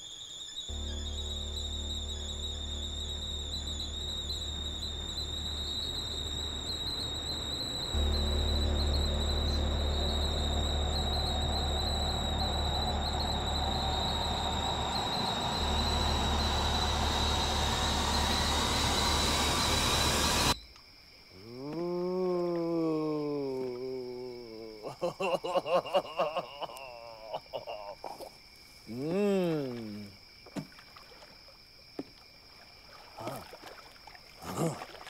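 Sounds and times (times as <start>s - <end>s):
high-pitched ringing tone: 0.0s - 20.6s
deep low rumble: 0.7s - 20.6s.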